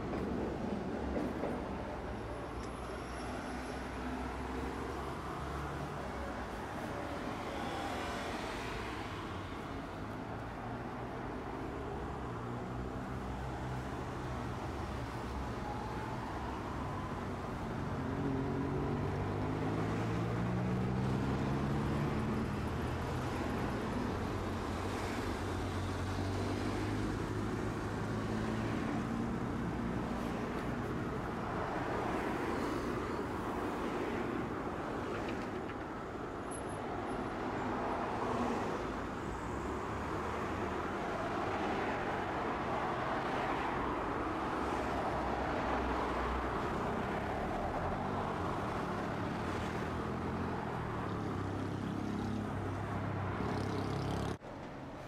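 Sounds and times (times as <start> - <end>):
cars passing: 15.7 - 54.8.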